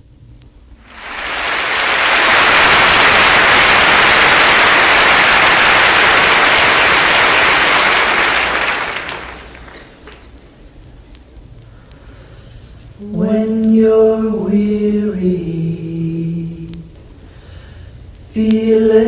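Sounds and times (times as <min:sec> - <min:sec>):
audience applauding: 0:00.8 - 0:10.3.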